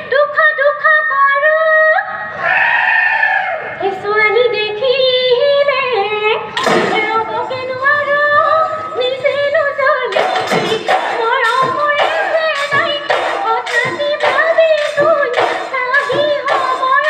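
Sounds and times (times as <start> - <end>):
woman singing: 3.8 - 17.0
dhol drum beats: 10.1 - 17.0.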